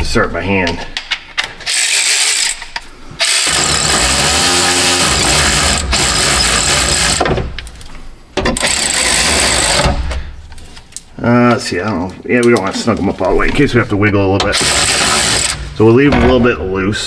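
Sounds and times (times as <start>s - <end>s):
cordless drill whirring: 3.2s - 7.2s, 14.6s - 15.6s.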